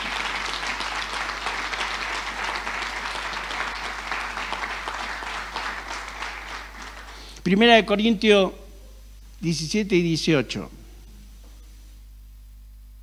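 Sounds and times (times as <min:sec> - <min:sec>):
congregation applauding: 0:00.0 - 0:07.5.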